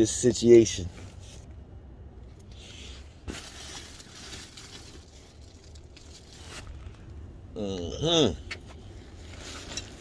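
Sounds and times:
low steady hum: 0:00.0 - 0:10.0
clothing rustle: 0:03.2 - 0:07.1, 0:09.0 - 0:10.0.

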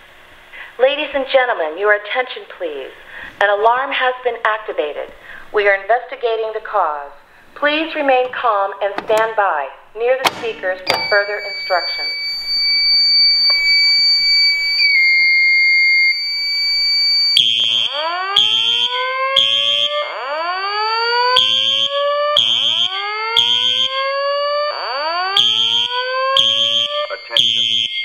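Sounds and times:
fire alarm horn blasts: 0:10.9 - 0:28.0
steady high electronic tone: 0:10.9 - 0:28.0.

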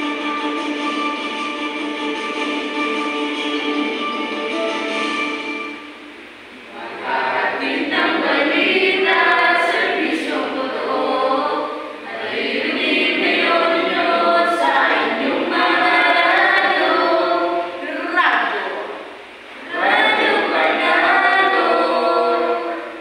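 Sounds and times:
group singing unaccompanied: 0:06.5 - 0:23.0.

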